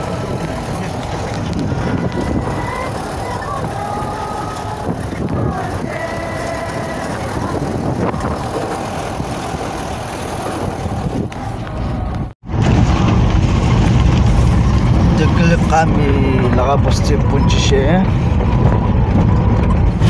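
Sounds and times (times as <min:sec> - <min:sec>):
vehicle engine and road noise: 0:00.0 - 0:20.0.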